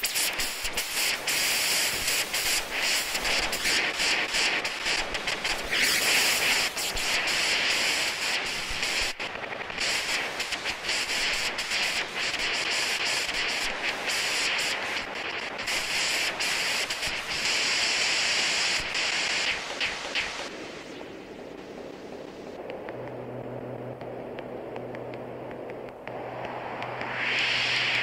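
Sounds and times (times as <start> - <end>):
synthesizer noise hiss: 0.0 - 28.0
fine crackling clicks: 21.5 - 27.3.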